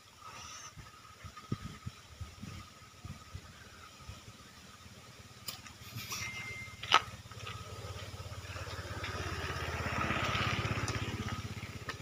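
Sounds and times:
small engine running: 5.8 - 12.0.

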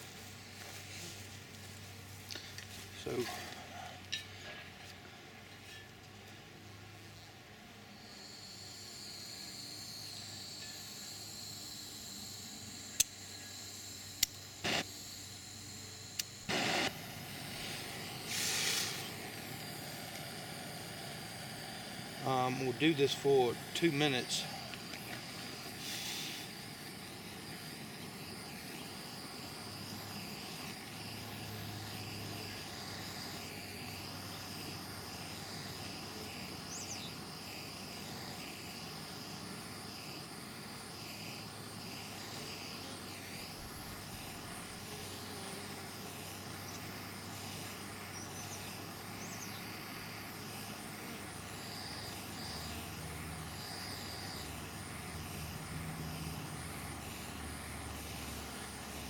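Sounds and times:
propane torch hissing: 0.0 - 4.9, 7.9 - 59.0
faint insect chirping: 6.7 - 59.0.

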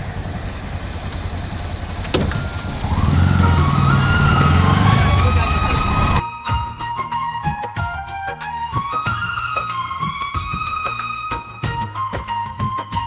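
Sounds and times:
traffic noise: 0.0 - 6.2
vehicle engine accelerating: 0.0 - 6.2.

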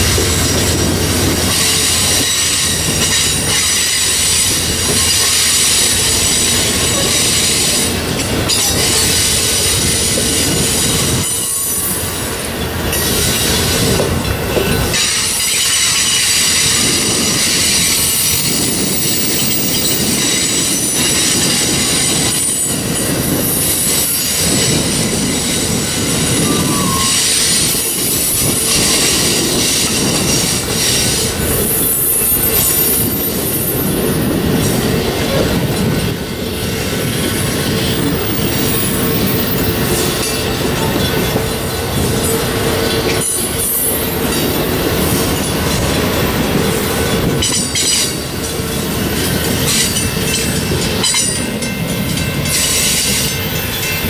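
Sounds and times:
rumble of wheels on rail: 0.0 - 54.0
high-pitched wheel squeal: 24.0 - 34.0.

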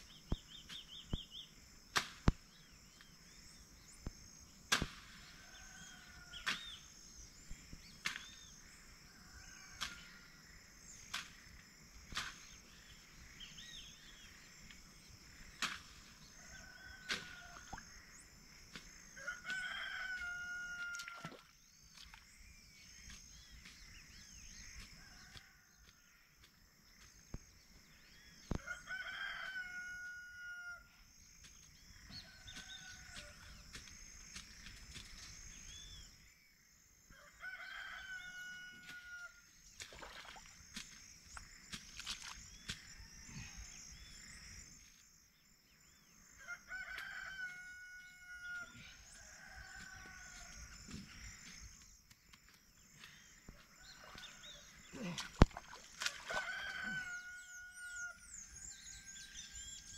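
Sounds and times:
rooster crowing: 19.2 - 21.4, 28.6 - 30.9, 37.1 - 39.4, 46.4 - 50.6, 56.1 - 59.4.

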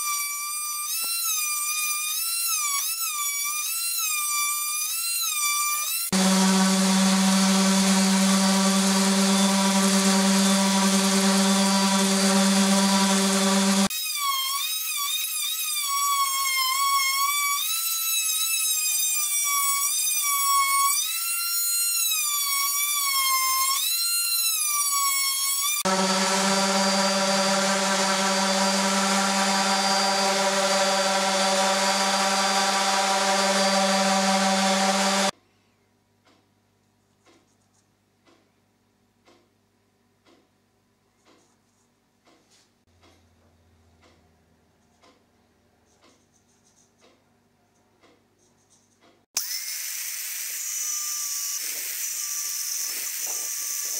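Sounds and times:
multi-tool cutting wood: 0.0 - 35.4, 49.3 - 53.9
orbital sander running: 6.1 - 13.9, 25.8 - 35.3, 49.4 - 53.9.

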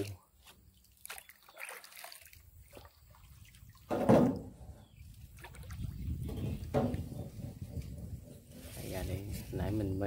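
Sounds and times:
paddle splashing in water: 0.8 - 7.4.

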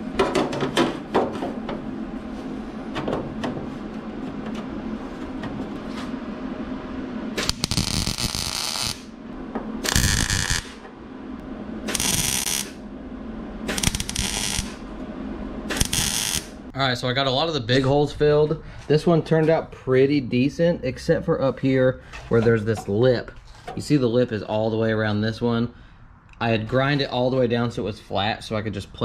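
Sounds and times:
welding arc sizzle: 7.3 - 10.8, 11.5 - 12.8, 13.6 - 15.0, 15.6 - 16.8.

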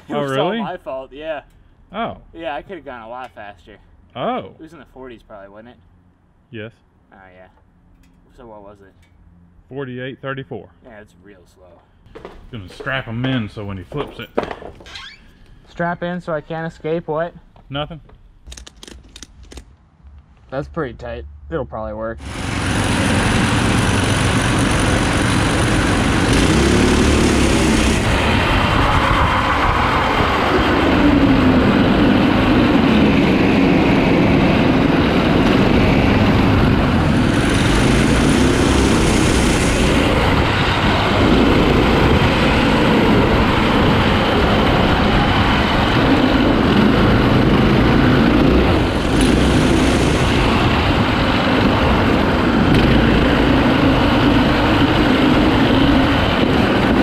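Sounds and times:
go-kart engines revving: 22.2 - 57.0.

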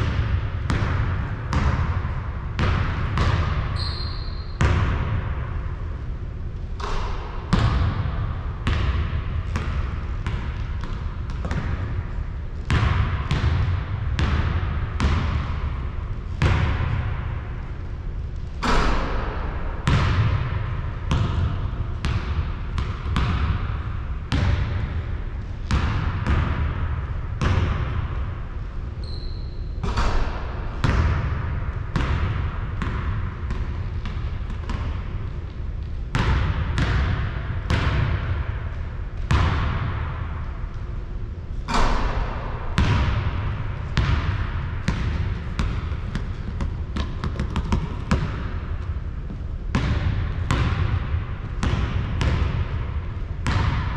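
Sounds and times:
basketball bouncing on court floor: 0.0 - 5.5, 6.6 - 17.6, 18.4 - 28.3, 29.0 - 40.8, 41.6 - 53.9
brief high squeak: 29.0 - 29.6.

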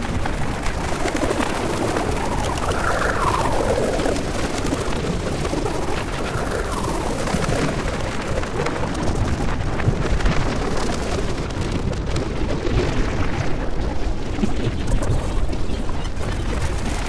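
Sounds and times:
dense grainy rumbling noise: 0.0 - 17.0.

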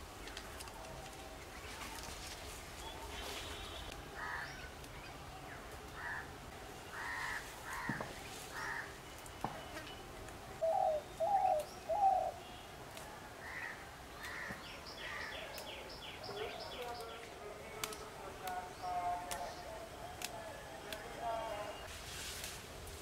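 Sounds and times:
crows cawing: 4.2 - 4.6, 6.0 - 6.3, 6.9 - 9.0, 13.4 - 15.4.

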